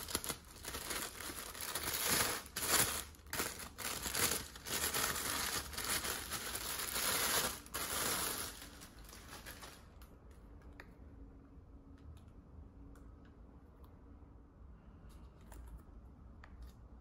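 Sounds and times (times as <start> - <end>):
tissue paper crinkling: 0.0 - 10.0.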